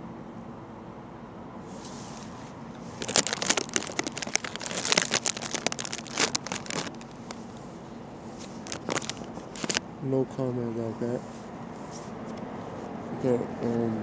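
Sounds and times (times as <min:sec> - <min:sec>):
crinkling handling noise: 0:01.7 - 0:09.8.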